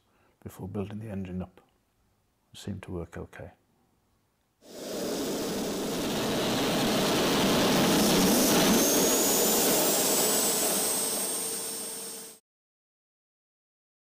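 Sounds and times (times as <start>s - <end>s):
model jet engine rushing whine: 4.6s - 12.4s.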